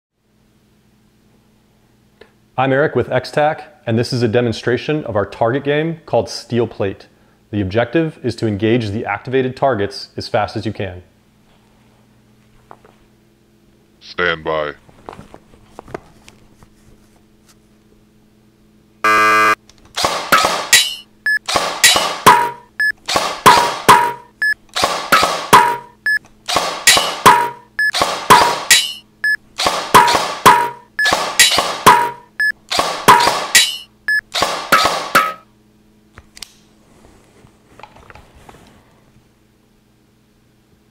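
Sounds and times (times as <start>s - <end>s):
short beeps: 19.0s - 19.6s, 20.8s - 21.4s, 22.3s - 23.0s, 23.9s - 24.6s, 25.6s - 26.2s, 27.3s - 29.4s, 30.5s - 32.6s
electronic start beep: 19.1s - 19.6s
shots hitting steel targets: 20.0s - 29.0s, 29.6s - 35.4s.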